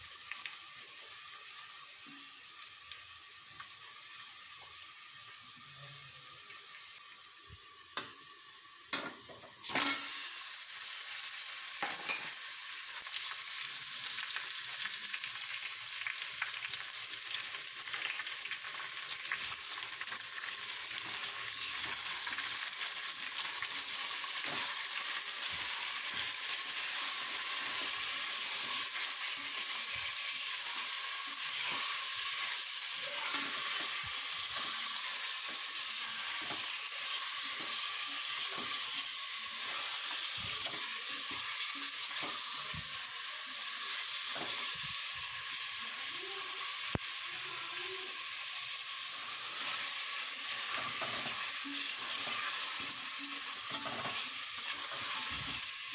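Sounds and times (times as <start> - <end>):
meat sizzling in oil: 0.0 - 55.9
spatula scraping pot: 50.5 - 51.4, 53.7 - 55.6.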